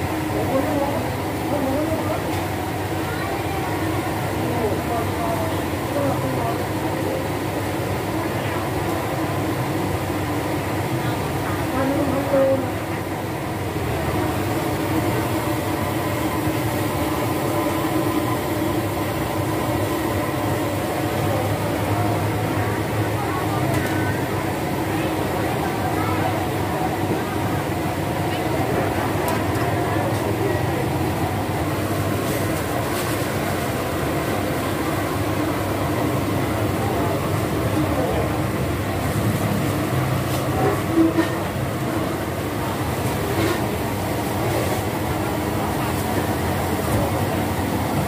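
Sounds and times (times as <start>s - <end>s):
gas burner roaring: 0.0s - 48.0s.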